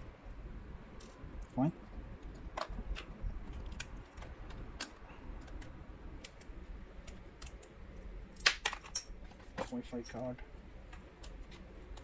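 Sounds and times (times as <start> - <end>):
laptop parts clicking: 2.2 - 12.0.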